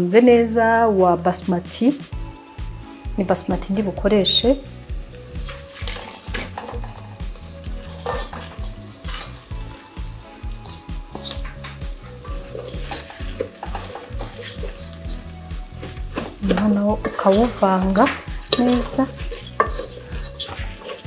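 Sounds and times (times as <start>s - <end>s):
onions sizzling in oil: 2.1s - 21.0s
wooden spoon scraping a pot: 5.2s - 21.0s.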